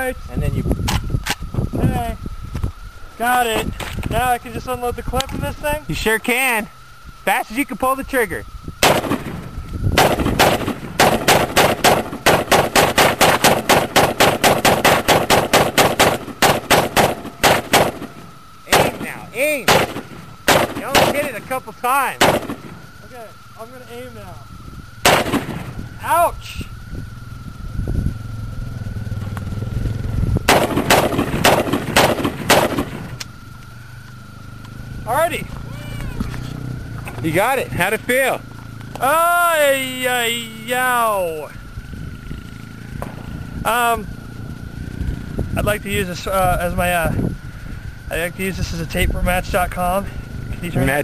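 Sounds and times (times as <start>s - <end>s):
rifle shots: 8.8s - 21.4s, 22.2s - 22.8s, 25.0s - 25.8s, 30.5s - 33.1s.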